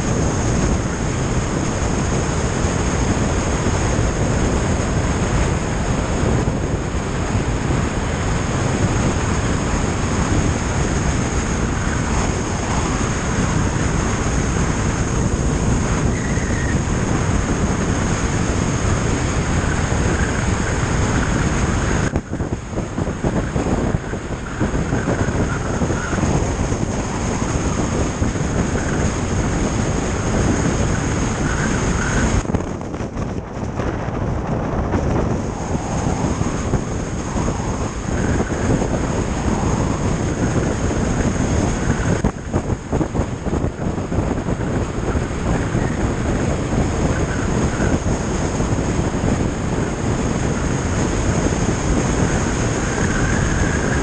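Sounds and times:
wind rushing over microphone: 0.0 - 54.0.

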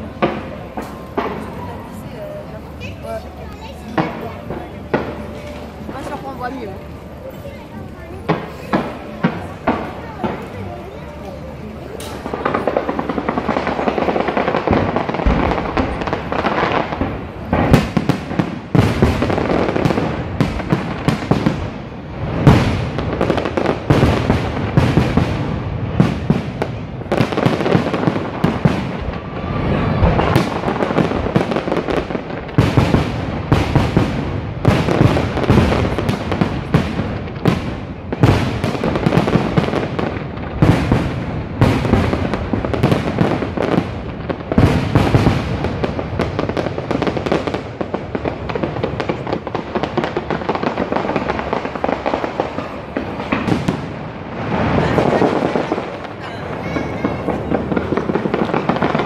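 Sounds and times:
fireworks bursts and crackle: 0.0 - 59.0
sharp firework bangs: 11.8 - 59.0.

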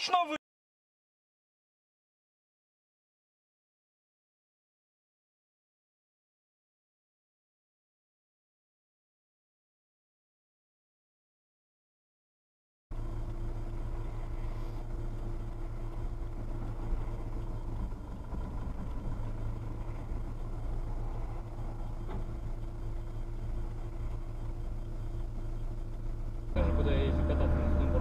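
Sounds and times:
car engine and road noise hum: 12.9 - 28.0.

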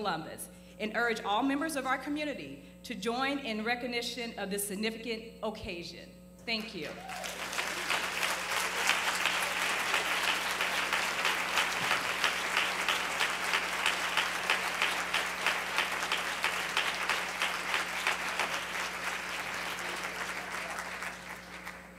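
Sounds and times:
audience applauding: 7.0 - 21.9
loud steady claps: 7.1 - 21.9.

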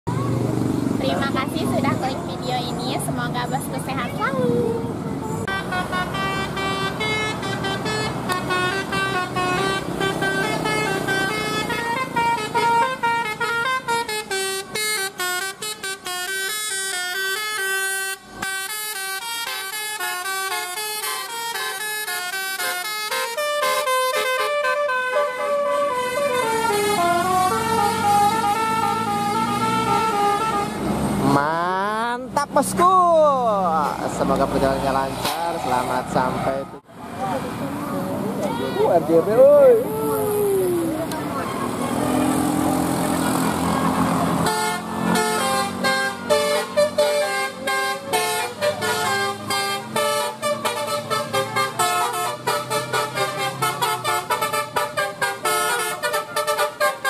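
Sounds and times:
multi-trumpet bus horn melody: 5.3 - 31.4, 41.3 - 57.0.

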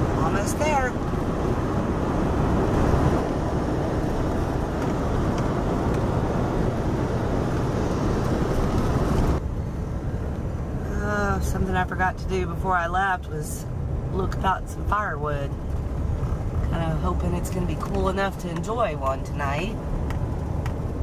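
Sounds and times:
van road and engine noise: 0.0 - 21.0.

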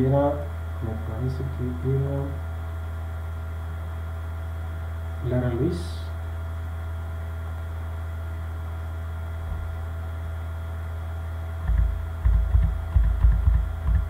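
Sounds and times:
electrical mains hum: 0.0 - 14.0
loud low thumps: 9.4 - 9.8.

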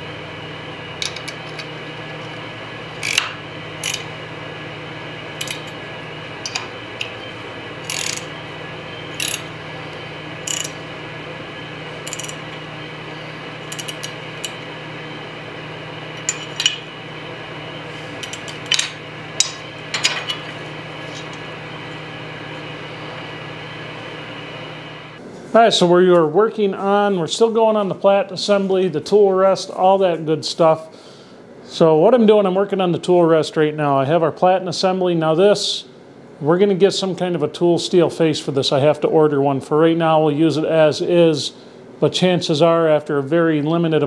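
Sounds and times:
steady hum: 0.0 - 44.0
wrench clinking on metal: 12.1 - 12.4, 13.7 - 14.6.

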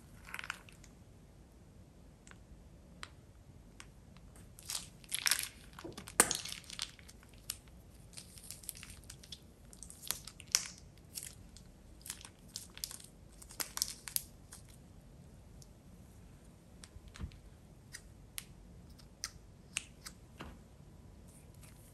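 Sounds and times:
plastic bag crinkling: 4.6 - 14.8.

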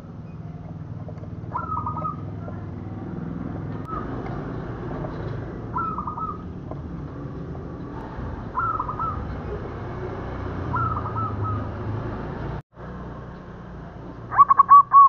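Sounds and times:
dove cooing: 0.5 - 2.7, 5.0 - 6.6, 8.5 - 9.6, 10.7 - 11.8, 14.3 - 15.0.

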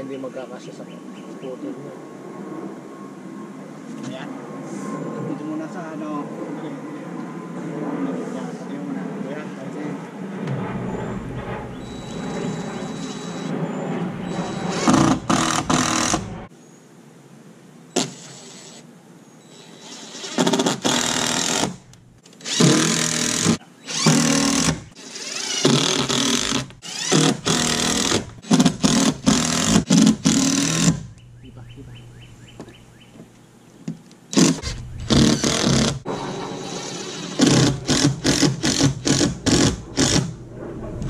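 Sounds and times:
cordless drill running: 22.4 - 31.0, 34.4 - 40.3.

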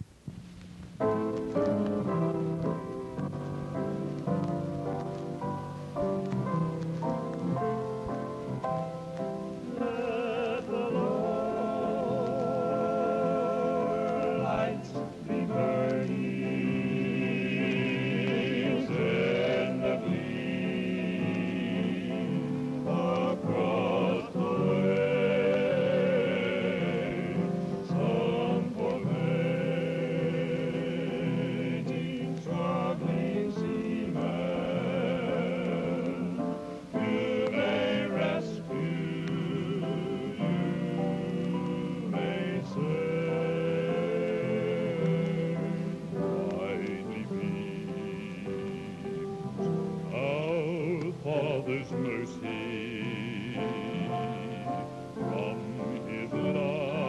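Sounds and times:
choir singing gospel: 1.1 - 57.0.

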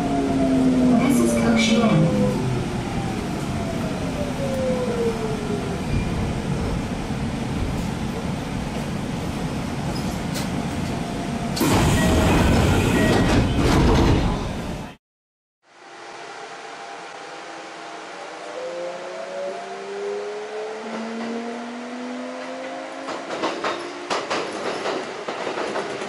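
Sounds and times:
downward gliding tones: 15.8 - 24.0.

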